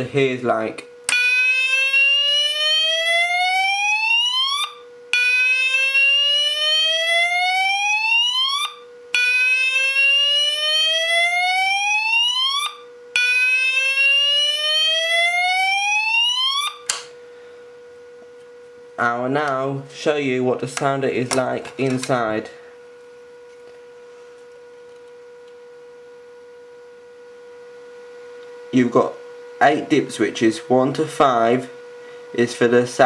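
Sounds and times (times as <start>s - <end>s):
alarm click: 1.1s - 2.8s, 12.2s - 15.2s
fire alarm rising sweep tone: 1.1s - 17.6s.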